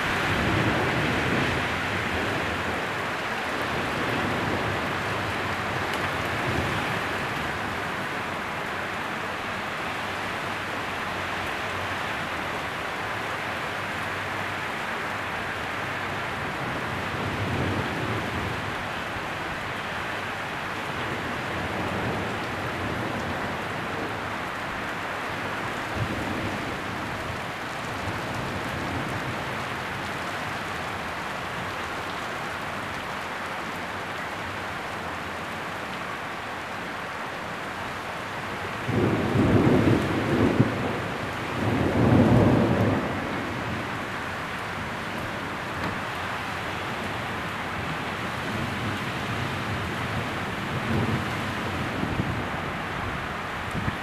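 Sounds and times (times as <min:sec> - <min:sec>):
heavy rain pouring: 0:00.0 - 0:54.0
low thunder rumbles: 0:38.8 - 0:46.0.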